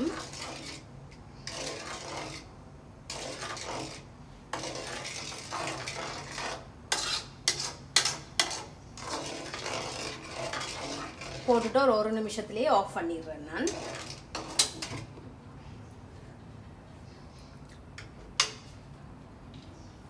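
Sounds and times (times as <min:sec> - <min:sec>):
spoon scraping cooking pot: 0:00.0 - 0:02.5, 0:03.1 - 0:12.0, 0:13.6 - 0:15.2.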